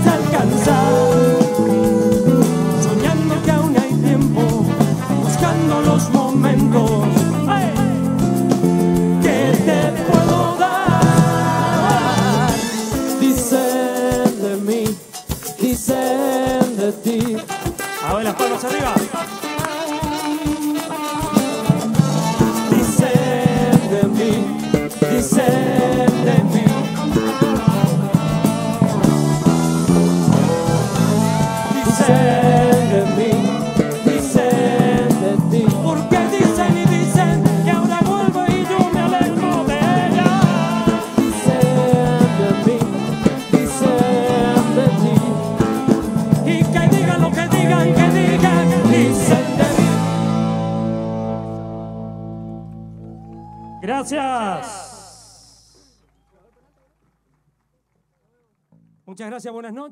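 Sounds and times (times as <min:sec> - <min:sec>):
man singing into a microphone: 0:00.0 - 0:08.2, 0:09.1 - 0:19.6, 0:21.3 - 0:28.0, 0:30.4 - 0:50.3
bass guitar: 0:00.0 - 0:16.1, 0:17.1 - 0:56.1
drum kit beat: 0:00.0 - 0:51.2
electric guitars: 0:00.0 - 0:53.8
live band playing: 0:00.0 - 0:53.8.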